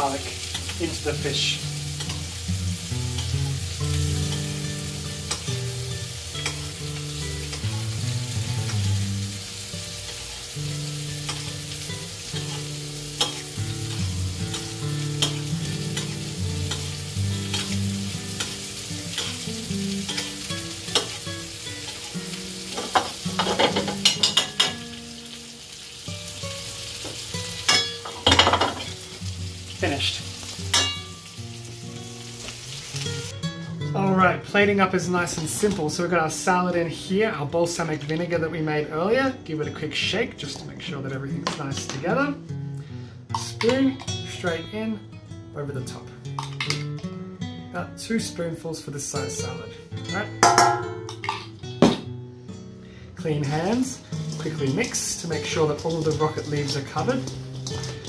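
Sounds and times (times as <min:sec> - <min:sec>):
butter sizzling in a frying pan: 0:00.0 - 0:33.4, 0:53.3 - 0:58.0
spoon clinking against pan: 0:30.7 - 0:31.0, 0:50.4 - 0:51.5.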